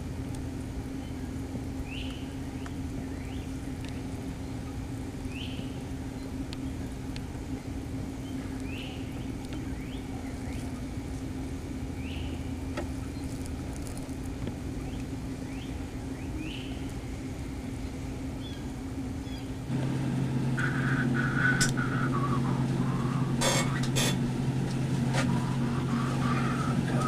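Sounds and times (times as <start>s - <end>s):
steady low hum: 0.0s - 27.0s
bird chirping: 1.8s - 3.5s, 5.3s - 6.8s, 8.2s - 10.7s, 12.0s - 13.4s, 14.8s - 17.2s.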